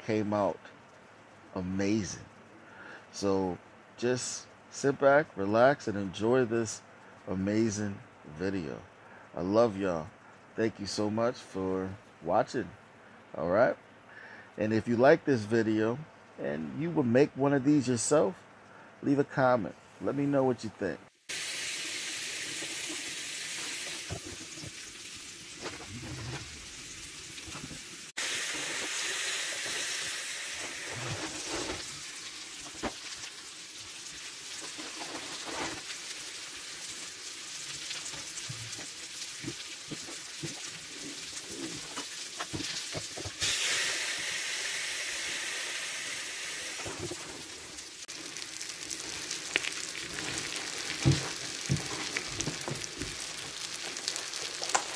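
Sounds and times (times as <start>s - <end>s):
steak sizzling with pops: 21.3s - 54.9s.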